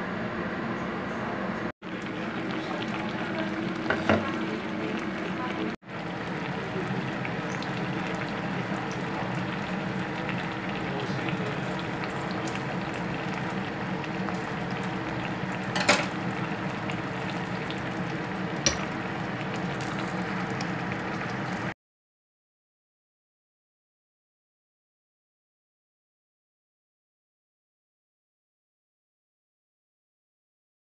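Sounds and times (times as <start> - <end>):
stew bubbling at a boil: 1.8 - 21.7.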